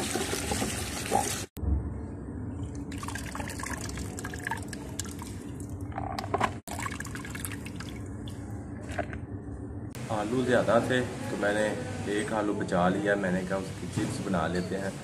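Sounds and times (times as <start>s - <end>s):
water pouring and dripping: 0.0s - 1.5s.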